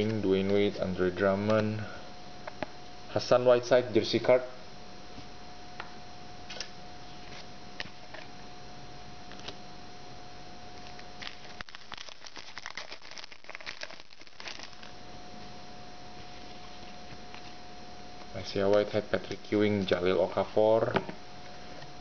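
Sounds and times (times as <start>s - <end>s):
foil card pack crinkling: 10.8s - 15.0s.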